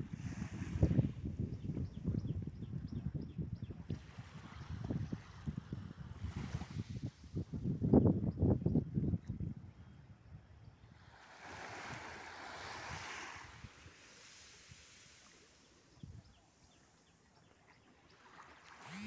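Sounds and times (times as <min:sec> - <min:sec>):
small waves washing onto beach: 0:00.0 - 0:01.2, 0:03.8 - 0:07.4, 0:11.0 - 0:17.1, 0:17.9 - 0:19.0.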